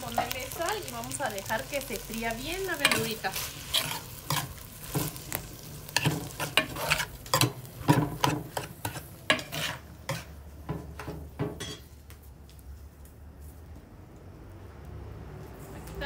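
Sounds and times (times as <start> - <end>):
vegetables sizzling in oil: 0.0 - 11.4
spoon scraping a pan: 2.7 - 11.9.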